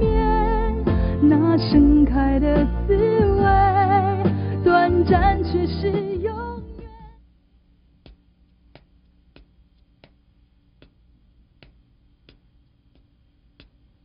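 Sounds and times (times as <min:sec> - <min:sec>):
low steady hum: 0:00.0 - 0:14.0
faint ticking: 0:07.9 - 0:14.0.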